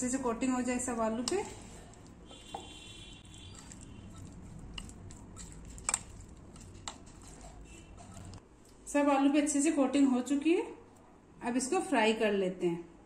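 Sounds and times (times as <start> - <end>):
wet squishing of stirred batter: 0.0 - 8.8.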